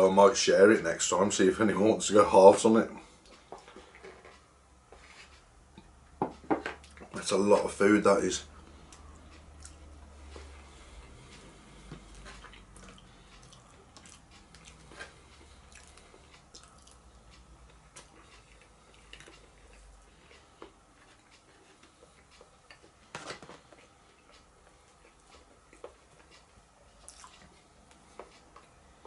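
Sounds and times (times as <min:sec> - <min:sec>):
chewing: 0:08.9 - 0:11.3, 0:12.0 - 0:23.0, 0:23.6 - 0:28.8.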